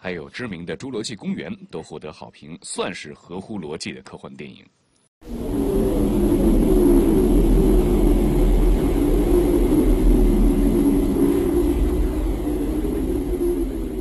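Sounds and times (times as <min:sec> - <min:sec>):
deep rumble: 0:05.2 - 0:14.0
loud low drone: 0:05.2 - 0:14.0
wavering hum: 0:05.2 - 0:14.0.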